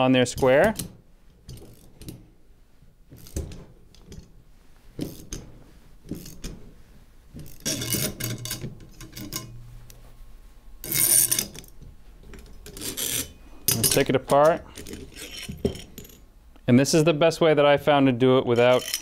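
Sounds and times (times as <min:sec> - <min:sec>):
metal scraping on metal: 0:12.7 - 0:16.1
metal clatter: 0:18.6 - 0:19.0.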